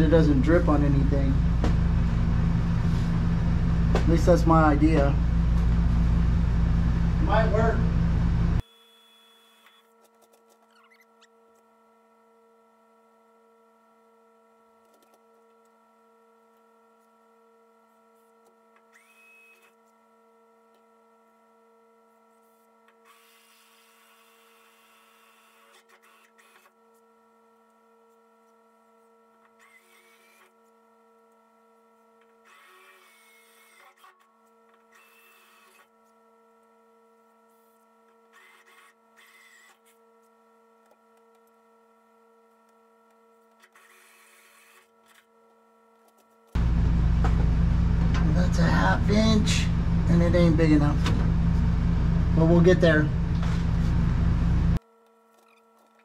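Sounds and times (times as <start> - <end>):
electrical hum: 0.0 - 8.6, 46.6 - 54.8
thin squeaks: 9.1 - 11.4.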